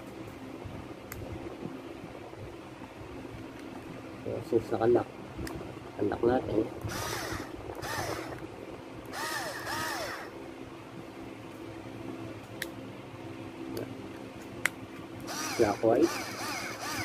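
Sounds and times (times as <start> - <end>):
steady low hum: 0.0 - 17.0
cordless screwdriver motor whirring: 6.8 - 8.4, 9.1 - 10.3, 15.3 - 17.0.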